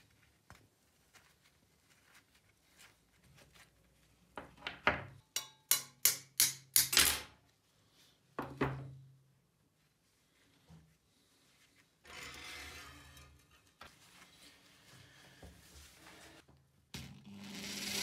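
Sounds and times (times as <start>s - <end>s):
metal hacksaw parts knocking: 5.3s - 7.2s.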